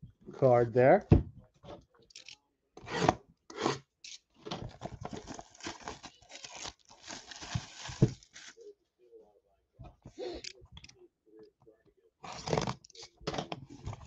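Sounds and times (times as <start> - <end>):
plastic wrap crinkling and tearing: 4.7 - 8.6.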